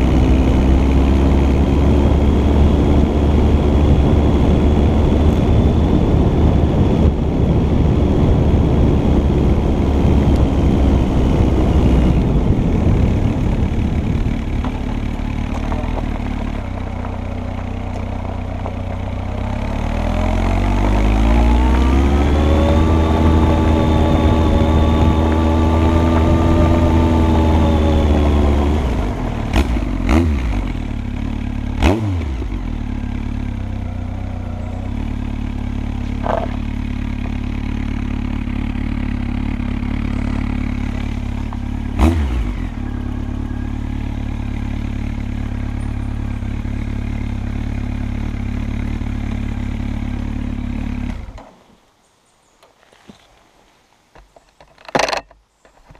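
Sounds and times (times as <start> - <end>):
motorcycle engine revving: 0.0 - 51.5.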